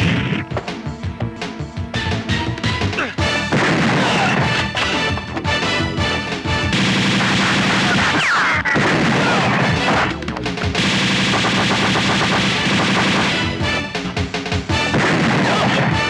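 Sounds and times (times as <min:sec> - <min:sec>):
action music score: 0:00.0 - 0:16.0
rapid gunfire: 0:03.3 - 0:16.0.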